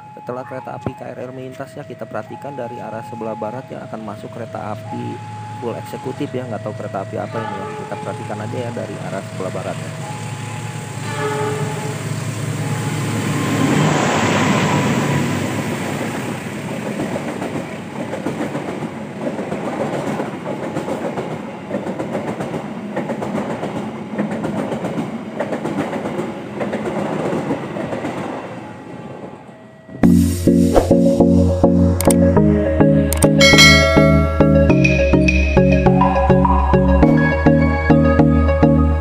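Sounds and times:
diesel locomotive engine drone: 0:00.0 - 0:23.3, 0:28.6 - 0:39.0
music: 0:30.0 - 0:39.0.

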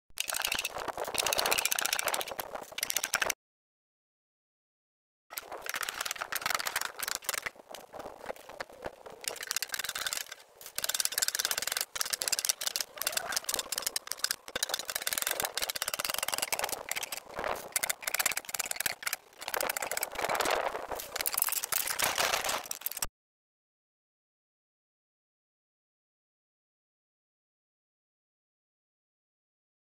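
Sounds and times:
wooden staves clattering: 0:05.3 - 0:23.1.

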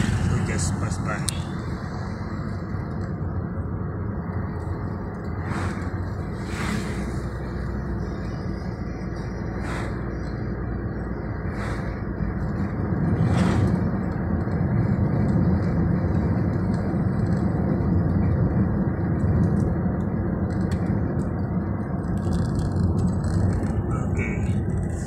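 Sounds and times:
car cabin engine and tyre rumble: 0:00.0 - 0:25.0.

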